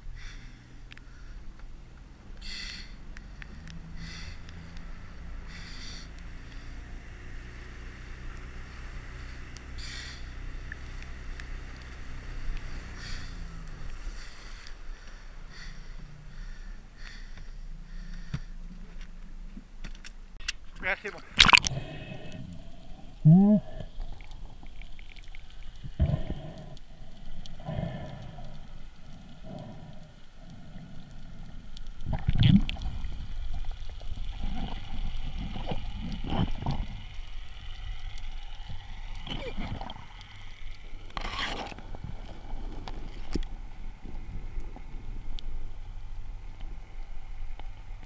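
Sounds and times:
wind: 0.0 - 48.0
faint sharp clicks: 0.9 - 2.1, 24.0 - 32.9, 44.5 - 45.5
wake water rushing: 20.8 - 48.0.

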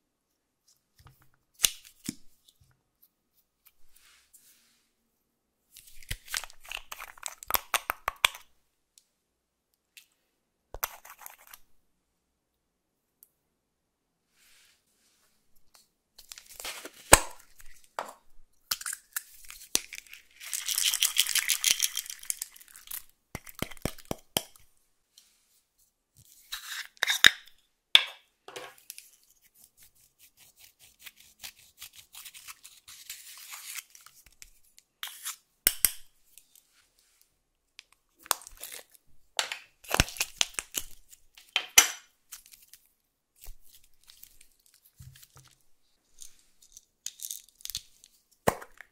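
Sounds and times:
sprinkles pouring: 20.3 - 22.9.

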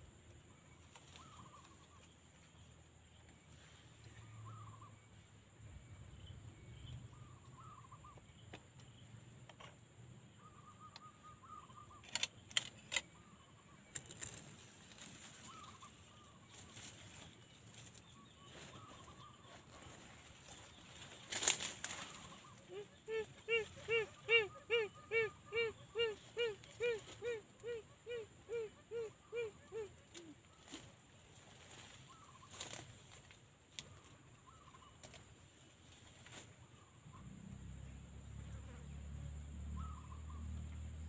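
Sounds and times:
faint quail calls: 4.2 - 5.0, 7.1 - 8.3, 10.3 - 12.3, 12.9 - 17.3, 18.0 - 30.9.

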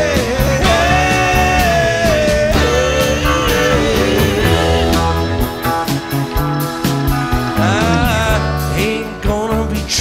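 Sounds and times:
electric guitar bending notes: 0.0 - 10.0
live rock band: 0.0 - 10.0.

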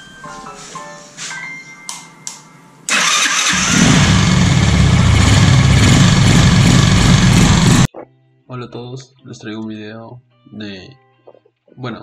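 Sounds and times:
electric starter cranking: 2.9 - 7.9
motorcycle engine running: 3.4 - 7.9.

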